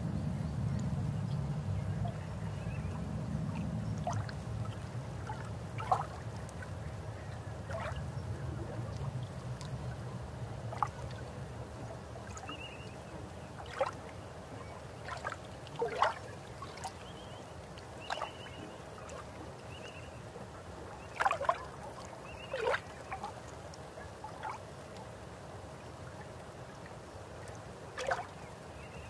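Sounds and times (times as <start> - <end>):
low rumble: 0.0 - 5.7.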